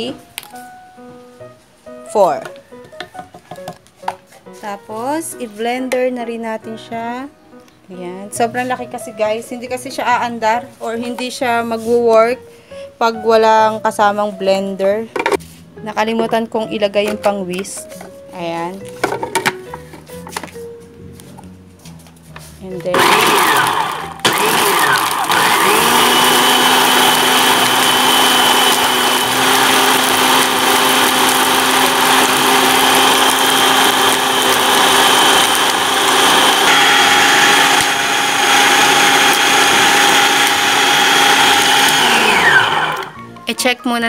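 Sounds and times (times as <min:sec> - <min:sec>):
food processor motor whining: 0:22.9 - 0:43.3.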